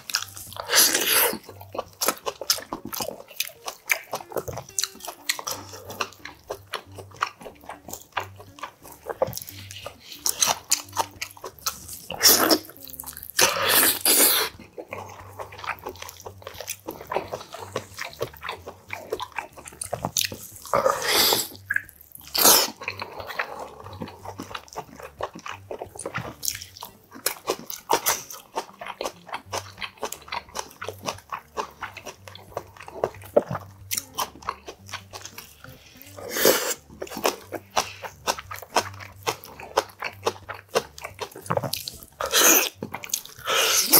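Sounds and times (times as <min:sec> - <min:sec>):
chewing and lip-smacking: 0:00.0 - 0:43.9
louder mouth noises: 0:20.7 - 0:24.2.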